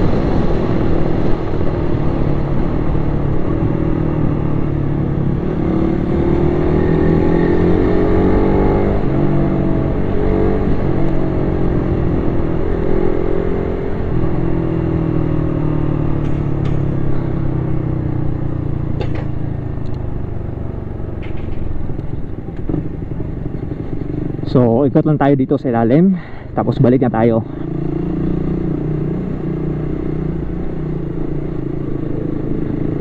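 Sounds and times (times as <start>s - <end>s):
wind rush: 0.0s - 18.5s
motorcycle engine revving: 0.0s - 24.9s, 27.4s - 33.0s.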